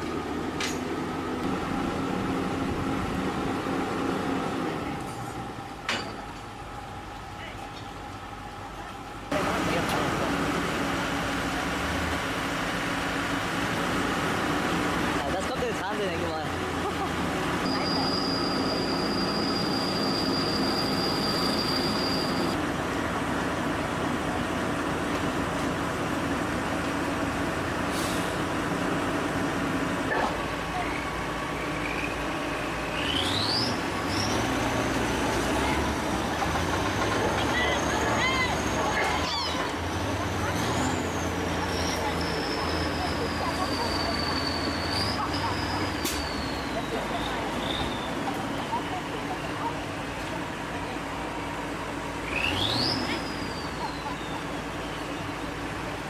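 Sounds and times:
excavator diesel engines running: 0.0s - 56.0s
high-pitched squeal: 17.6s - 22.6s.

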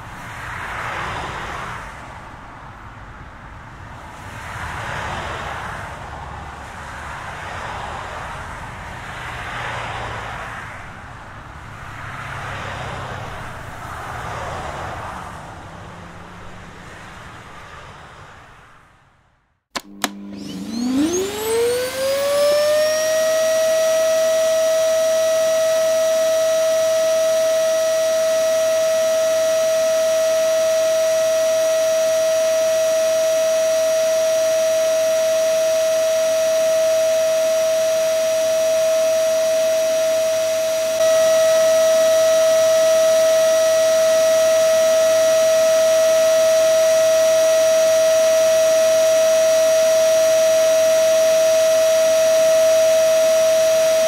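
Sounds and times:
vacuum cleaner whining: 19.8s - 54.0s.

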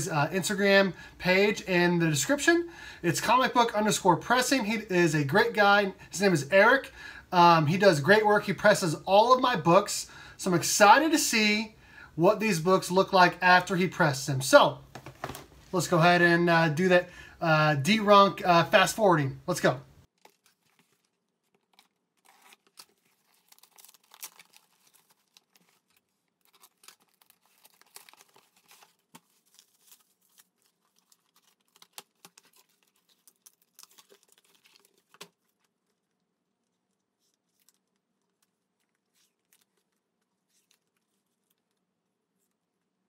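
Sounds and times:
packaging tearing and crinkling: 20.1s - 41.8s.

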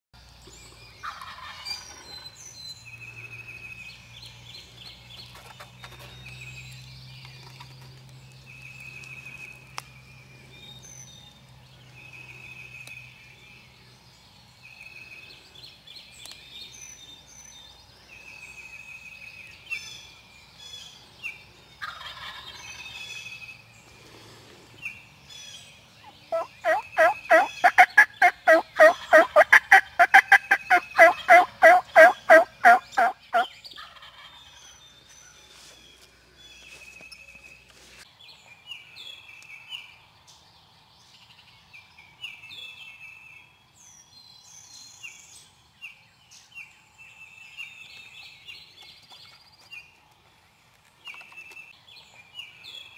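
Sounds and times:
songbird chorus: 0.2s - 52.9s
turkey calls: 1.0s - 2.0s, 21.8s - 22.6s, 26.0s - 34.5s.

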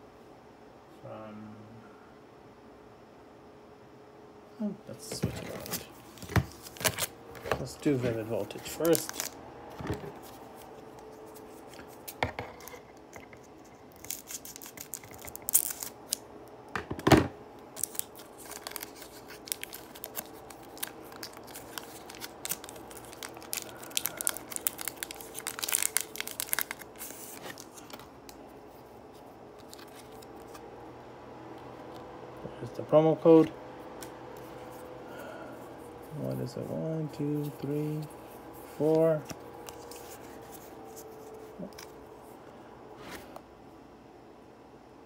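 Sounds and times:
foil wrapper crinkling and tearing: 7.9s - 9.4s, 13.6s - 16.2s, 17.7s - 28.1s, 29.6s - 30.6s.

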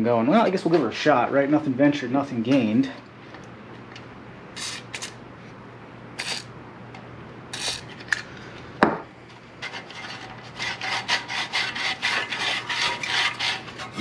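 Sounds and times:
aerosol spray hisses: 6.2s - 6.4s, 7.6s - 7.8s.

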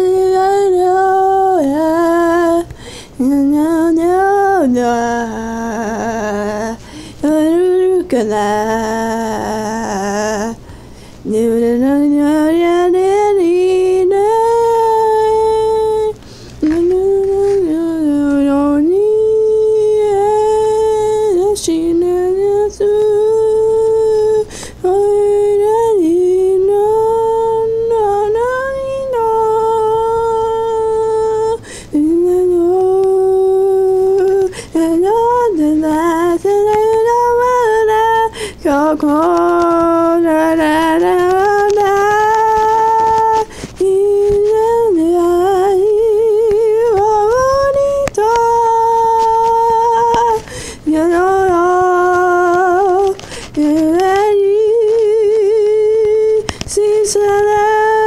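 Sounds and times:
woman singing slow melody: 0.0s - 58.0s
singer breathing: 2.7s - 3.2s, 6.8s - 7.2s, 10.6s - 11.2s, 16.2s - 16.6s, 24.5s - 24.8s, 31.6s - 32.0s, 34.5s - 34.8s, 38.3s - 38.6s, 43.5s - 43.8s, 50.4s - 50.9s, 53.2s - 53.6s.

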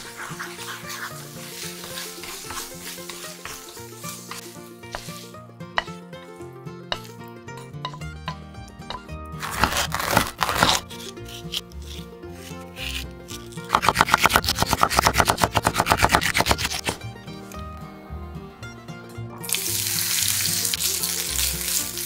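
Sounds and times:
background music: 0.0s - 22.0s
knife chopping on wooden board: 4.3s - 5.2s, 5.8s - 6.0s, 6.9s - 7.1s, 7.8s - 13.0s, 13.7s - 17.0s.

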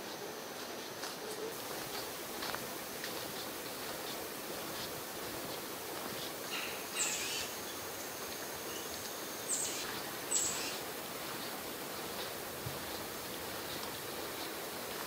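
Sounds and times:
outdoor background hiss: 0.0s - 15.0s
bird raspy calls: 6.5s - 7.6s, 9.5s - 10.8s.

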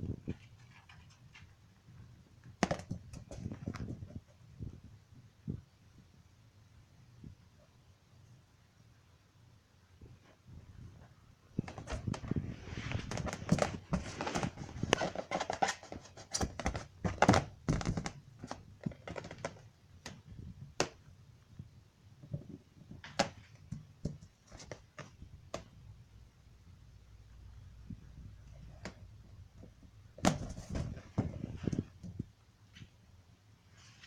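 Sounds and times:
balloon thuds and rubbing: 28.8s - 32.4s.

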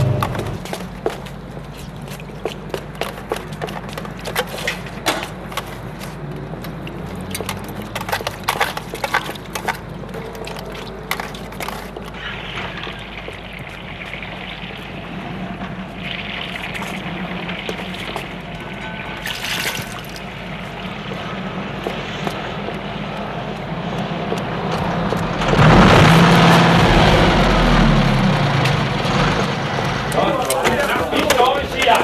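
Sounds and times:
water running from drinking fountain: 8.8s - 21.1s
steady low hum: 12.2s - 30.2s.

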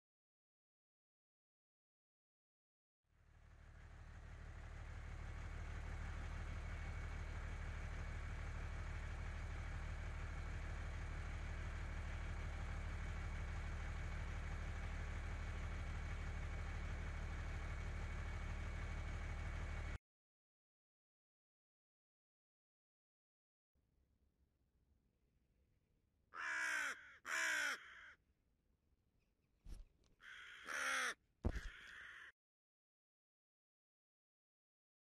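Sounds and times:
engine idling: 3.2s - 20.0s.

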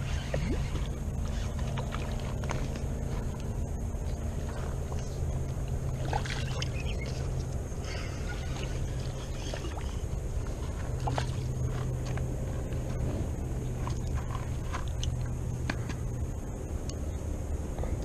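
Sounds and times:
fishing reel whirring: 0.0s - 4.5s.

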